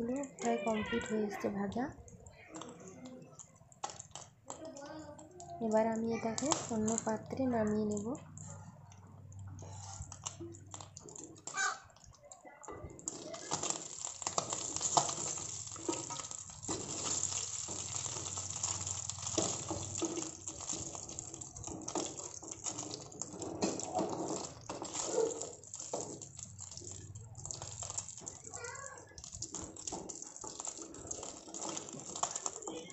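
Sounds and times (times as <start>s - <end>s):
fish sizzling in hot oil: 3.6s - 8.3s, 12.9s - 32.9s
spatula scraping and clicking on pan: 12.8s - 28.5s, 29.1s - 32.9s.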